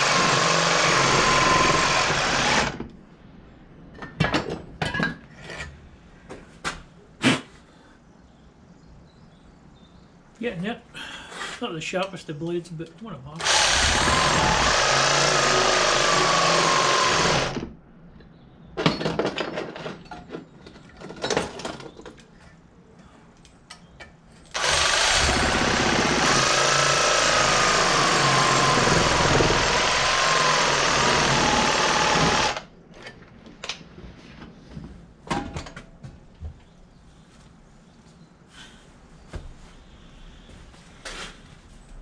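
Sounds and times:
reciprocating saw cutting metal: 24.6s - 32.6s.

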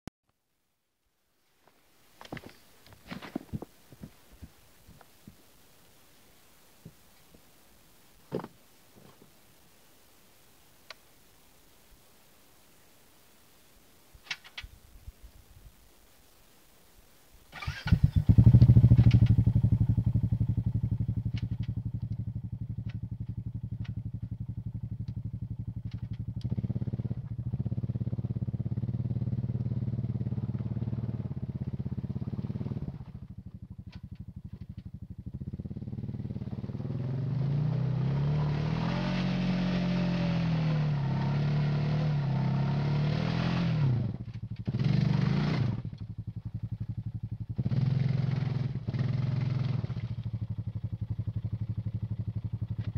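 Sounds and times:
quad bike engine revving: 17.5s - 52.9s.

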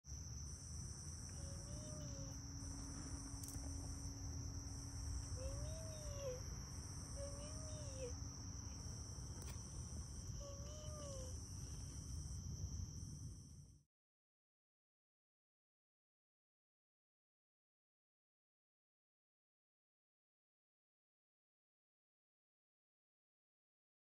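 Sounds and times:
high insect buzz: 0.1s - 13.7s
crickets chirring: 0.1s - 13.8s.

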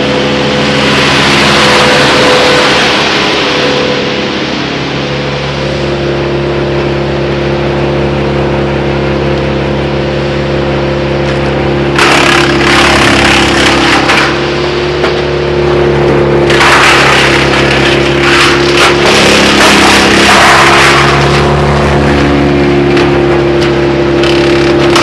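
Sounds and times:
chipper crackling through branches: 0.0s - 6.0s, 11.2s - 25.0s
wood chipper engine running: 0.0s - 25.0s.

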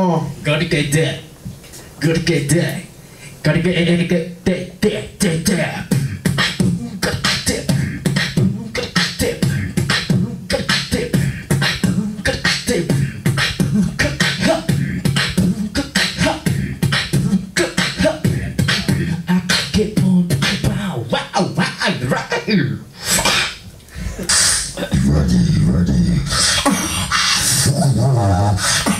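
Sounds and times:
person beatboxing: 4.8s - 28.9s
continuous low bass: 5.3s - 22.2s, 24.7s - 26.4s.

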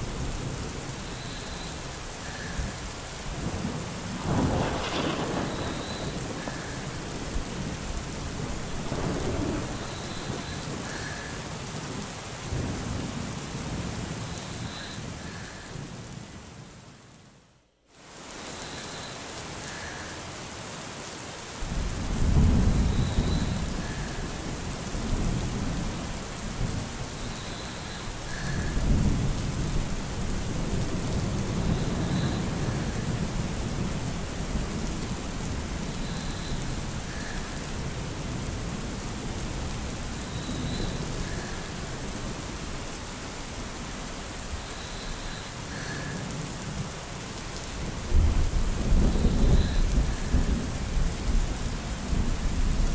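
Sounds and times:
steady rain: 0.0s - 52.9s
rolling thunder: 2.6s - 10.9s, 21.7s - 36.0s, 47.9s - 52.9s.

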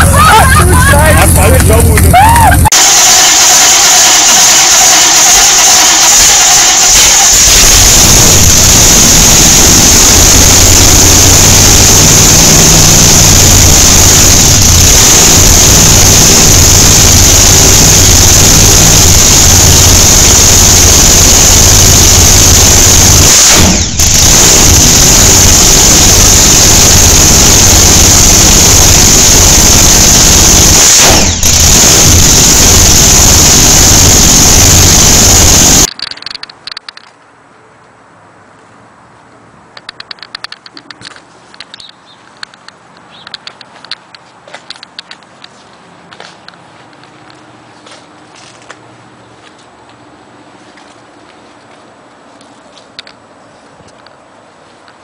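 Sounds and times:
motorcycle engine revving loudly: 2.8s - 35.9s.

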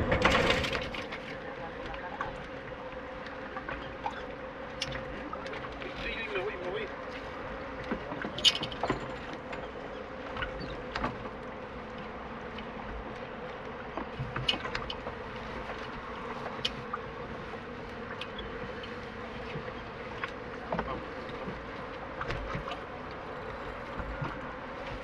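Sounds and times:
steady buzzing hum: 0.0s - 25.0s.

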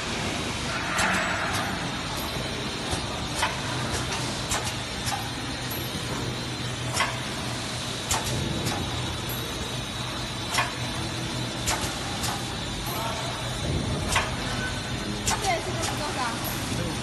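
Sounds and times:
packing machine humming: 0.0s - 17.0s
machine sharp clicks: 11.6s - 12.5s, 15.2s - 16.0s.

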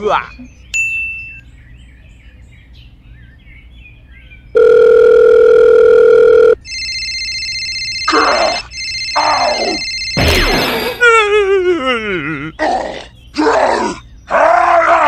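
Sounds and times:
telephone dial tone: 4.6s - 10.2s
trilling phone ring: 4.6s - 11.2s.

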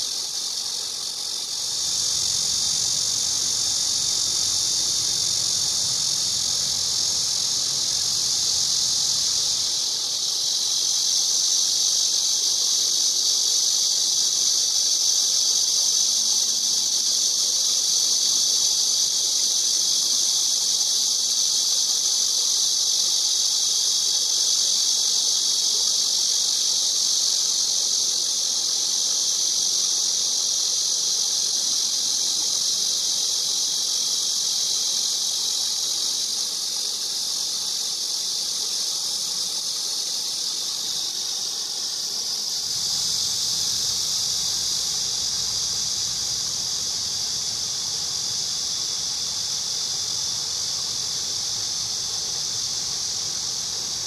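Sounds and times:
cicadas buzzing: 0.0s - 54.0s.

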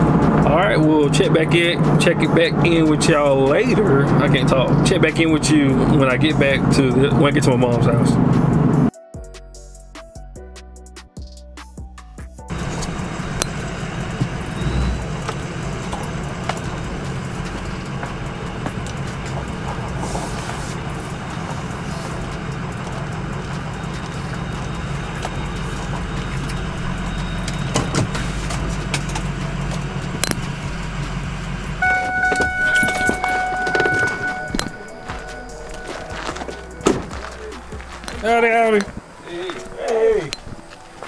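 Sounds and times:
truck engine and road rumble: 0.0s - 8.9s, 11.4s - 41.0s
electronic warning chime: 31.8s - 36.8s.

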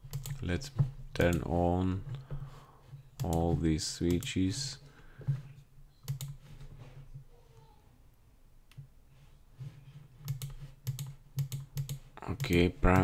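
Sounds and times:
computer mouse clicks: 0.1s - 0.4s, 6.0s - 6.4s, 10.2s - 13.0s.

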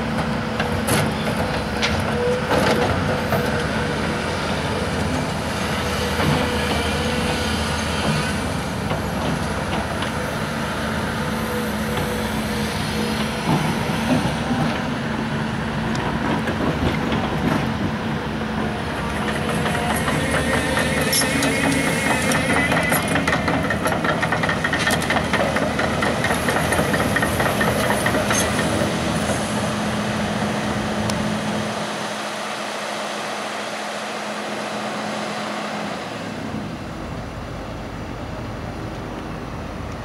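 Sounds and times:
excavator diesel engine running: 0.0s - 40.0s
steel track clanks and squeaks: 5.7s - 10.4s, 18.8s - 29.7s.

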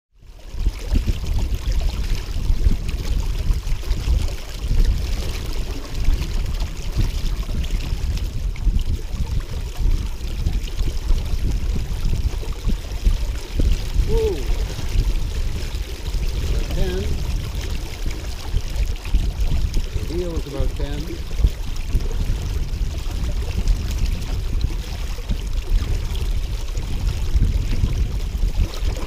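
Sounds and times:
water splashing along a hull: 0.1s - 29.0s
wind buffeting microphone: 0.2s - 29.0s.

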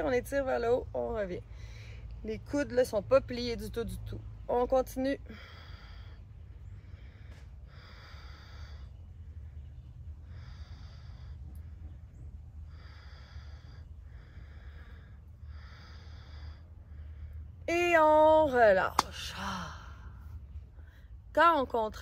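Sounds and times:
woman breathing: 1.4s - 2.2s, 5.2s - 17.6s, 19.4s - 21.3s.

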